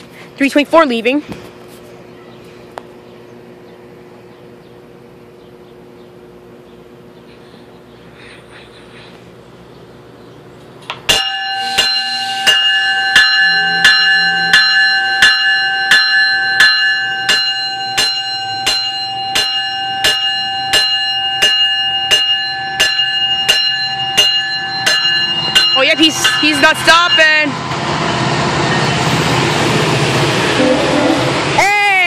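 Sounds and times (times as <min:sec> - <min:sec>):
train warning bell ringing: 0:11.0 - 0:31.4.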